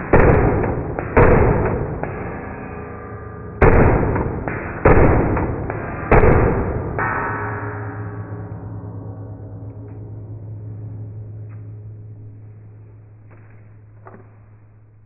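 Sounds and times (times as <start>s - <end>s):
slowed-down gunshots booming: 0.0s - 2.7s, 3.5s - 8.2s.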